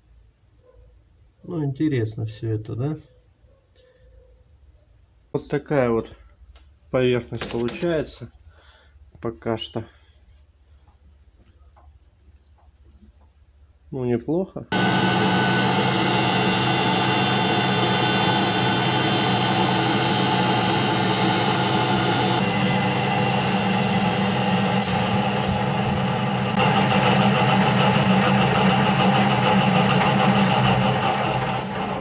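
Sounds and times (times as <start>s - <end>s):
metal lathe whining: 14.7s - 32.0s.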